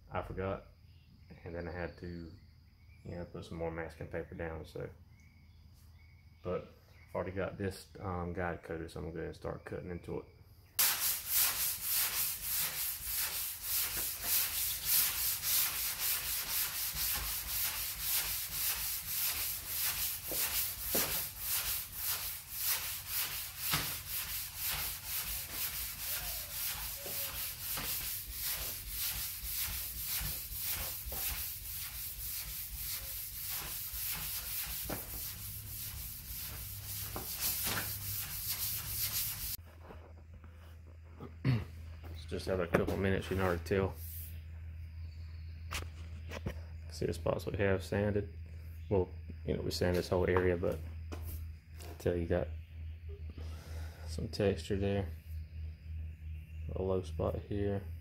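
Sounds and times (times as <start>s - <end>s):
hand sanding strokes: 10.8s - 39.6s, 43.2s - 44.4s.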